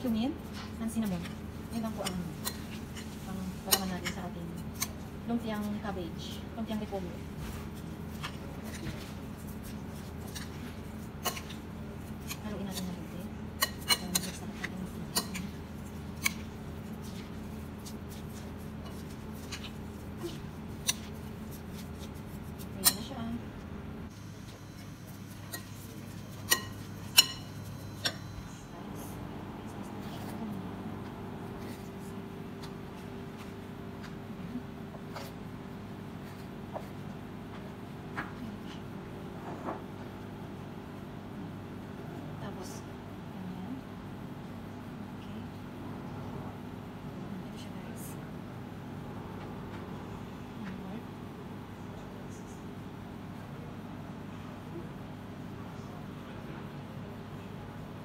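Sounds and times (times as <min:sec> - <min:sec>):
steady low hum: 0:00.0 - 0:58.0
spoon stirring in glass bowl: 0:00.9 - 0:23.3, 0:24.1 - 0:28.6.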